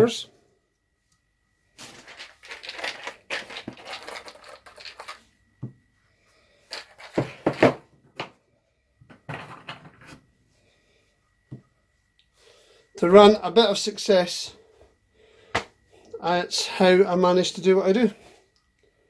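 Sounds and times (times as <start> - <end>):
scratchy rustling: 1.8 - 5.2.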